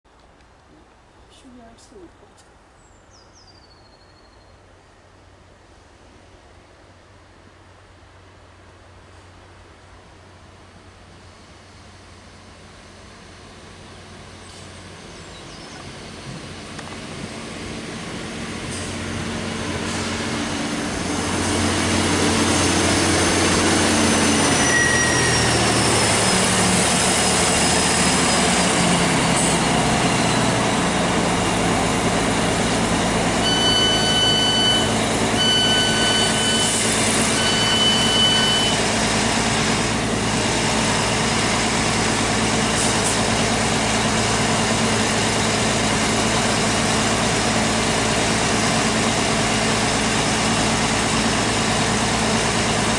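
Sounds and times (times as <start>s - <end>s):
train diesel engines slowing: 8.2s - 52.9s
electronic door beeps: 33.5s - 36.8s, 37.4s - 38.8s.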